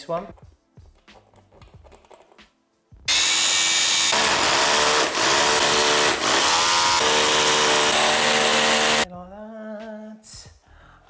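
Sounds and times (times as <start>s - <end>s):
hammer drill boring into wall: 3.1s - 9.0s.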